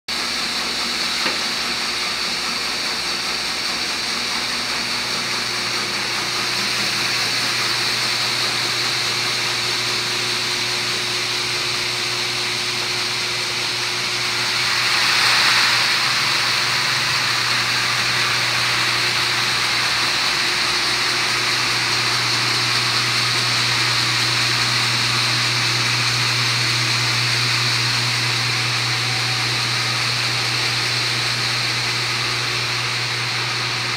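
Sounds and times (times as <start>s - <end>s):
motor and conveyor hum: 0.1s - 33.9s
mechanical hiss: 12.4s - 33.9s.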